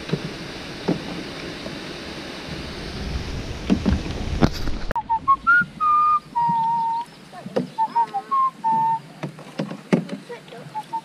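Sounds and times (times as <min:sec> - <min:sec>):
water splashing: 0:00.0 - 0:11.0
wind: 0:00.0 - 0:11.0
person whistling a tune: 0:05.0 - 0:07.1, 0:07.7 - 0:09.0, 0:10.7 - 0:11.0.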